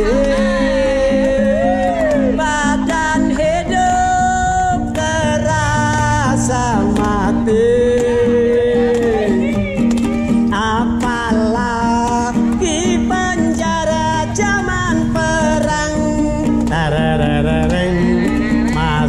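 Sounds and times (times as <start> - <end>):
man singing: 0.0 - 19.0
small guitar strumming: 0.0 - 19.0.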